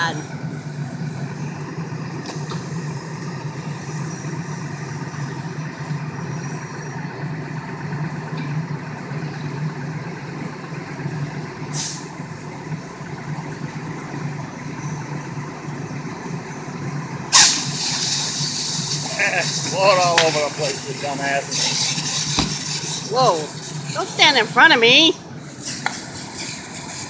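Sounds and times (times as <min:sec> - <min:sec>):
fire engine engine humming: 0:00.0 - 0:27.0
short hiss: 0:11.8 - 0:12.0, 0:17.3 - 0:19.7.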